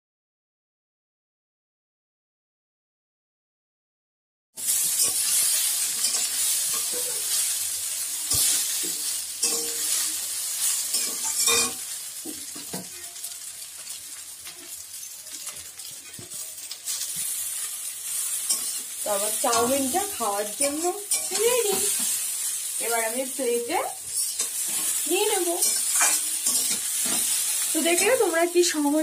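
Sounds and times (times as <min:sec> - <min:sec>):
metal spatula scraping a pan: 0:04.6 - 0:22.7, 0:24.1 - 0:28.4
noodles sizzling in hot oil: 0:04.6 - 0:29.0.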